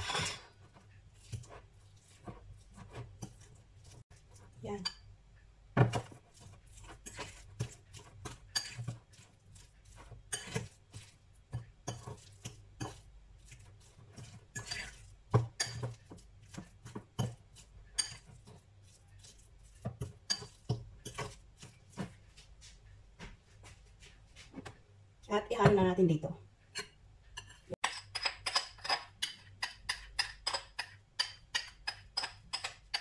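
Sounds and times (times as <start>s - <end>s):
fork scraping a glass bowl: 0.0s - 3.5s, 6.4s - 11.1s, 14.1s - 15.9s, 18.0s - 18.6s, 20.3s - 21.4s, 26.8s - 33.0s.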